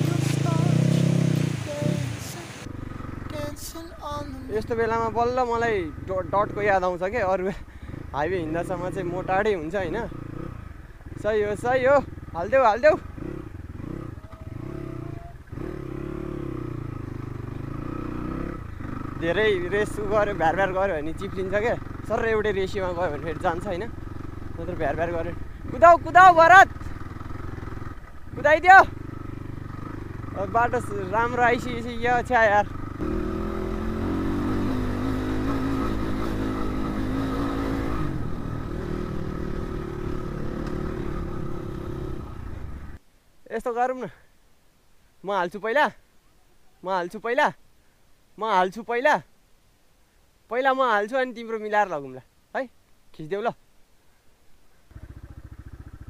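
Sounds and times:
dirt bike engine running: 0.0s - 43.0s, 54.9s - 56.0s.

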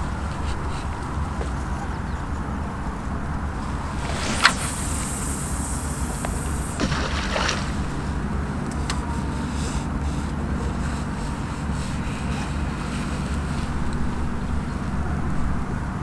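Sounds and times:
wind rumble on microphone: 0.0s - 16.0s
fishing rod swish: 3.6s - 8.2s
fishing line hissing off reel: 3.6s - 8.3s
reel click: 4.0s - 6.8s.

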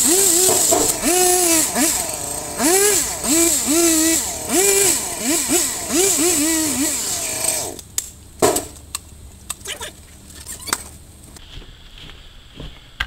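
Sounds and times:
chainsaw engine revving: 0.0s - 7.8s.

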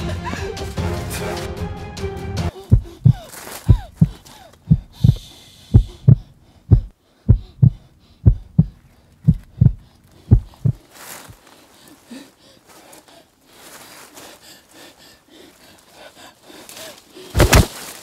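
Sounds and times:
heartbeat thumps: 2.6s - 10.9s.

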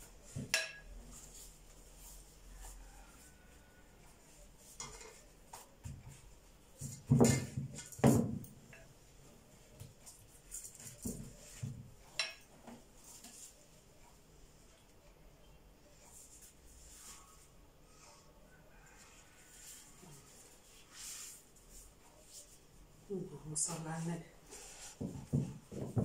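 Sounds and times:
brush clinking against metal bowl: 0.4s - 1.1s, 12.1s - 12.5s.

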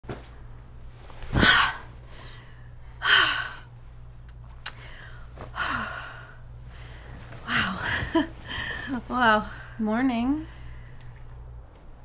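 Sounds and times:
woman gasping breathily: 4.8s - 9.8s.

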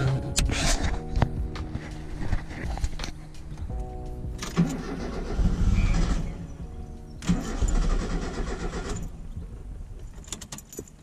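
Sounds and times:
starter motor cranking engine: 4.4s - 6.5s, 7.2s - 9.2s.

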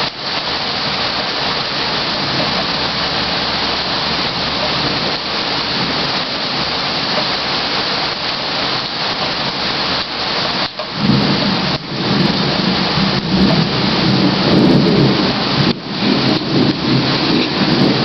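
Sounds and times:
rain falling: 0.0s - 18.0s
thunder rumble: 0.0s - 18.0s.

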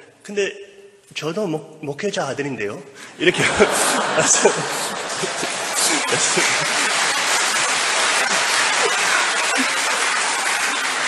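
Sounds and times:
scattered laughter: 3.3s - 11.0s
audience applauding: 3.4s - 11.0s.

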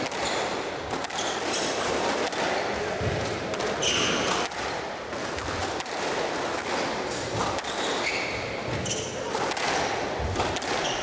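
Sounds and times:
squash ball hitting rackets and walls: 0.0s - 11.0s
shoes squeaking on hardwood floor: 7.6s - 9.3s, 10.7s - 11.0s.

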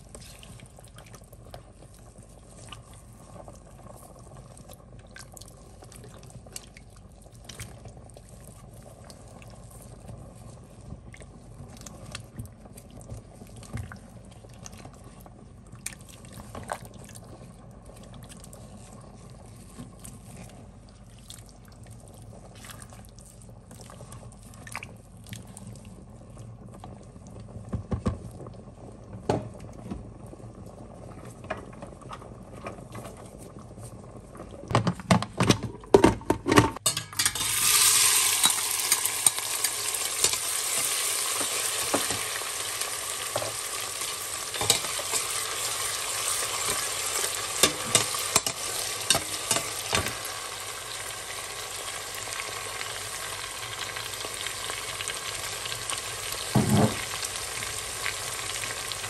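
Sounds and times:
vegetables sizzling in oil: 36.8s - 59.0s
spatula stirring: 44.6s - 50.0s.

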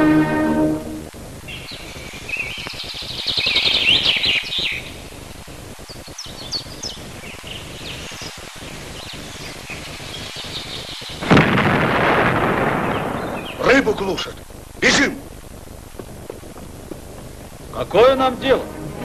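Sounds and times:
small songbirds chirping: 1.4s - 11.4s, 12.3s - 13.7s.

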